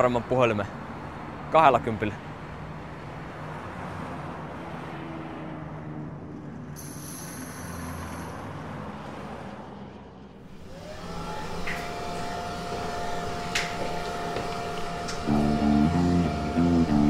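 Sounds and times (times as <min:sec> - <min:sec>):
outdoor background noise: 0:00.0 - 0:17.0
steady high hum: 0:10.4 - 0:17.0.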